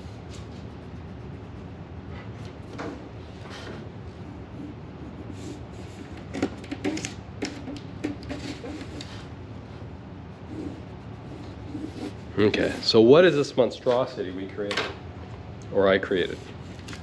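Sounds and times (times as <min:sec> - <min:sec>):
steady low hum: 0:00.0 - 0:17.0
pencil scratching on paper: 0:00.1 - 0:02.8, 0:03.6 - 0:06.3, 0:10.2 - 0:13.0.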